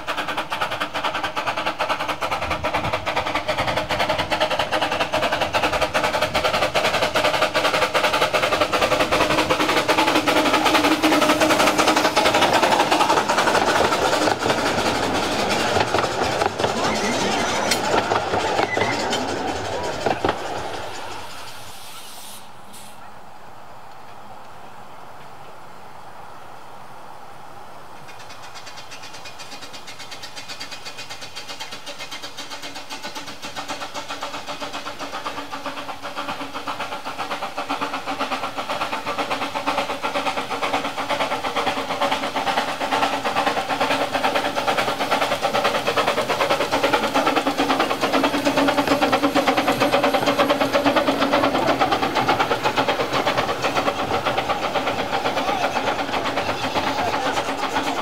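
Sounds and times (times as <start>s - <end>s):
steam locomotive exhaust beats: 0.0s - 25.6s, 26.6s - 58.0s.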